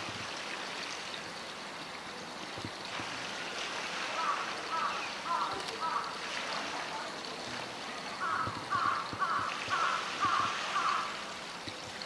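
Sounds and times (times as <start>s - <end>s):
crow cawing: 4.2s - 6.1s, 8.2s - 11.2s.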